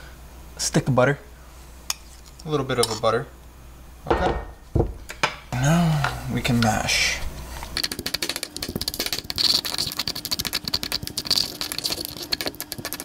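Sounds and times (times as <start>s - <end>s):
stone pestle mashing in mortar: 7.8s - 13.0s.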